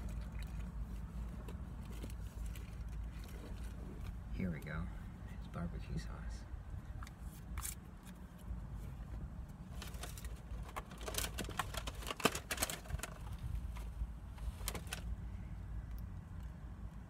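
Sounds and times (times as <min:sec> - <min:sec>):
steady low hum: 0:00.0 - 0:17.0
food packaging crackling: 0:09.8 - 0:13.9.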